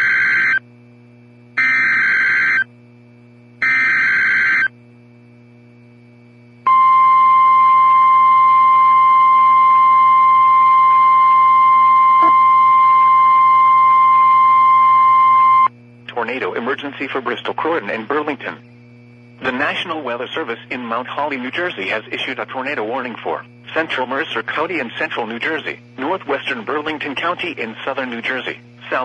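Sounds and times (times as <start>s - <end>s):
steady warning alarm tone: 0.0s - 0.7s, 1.6s - 2.7s, 3.6s - 4.8s, 6.6s - 15.7s
screeching data bursts: 1.6s - 2.7s, 3.6s - 4.7s.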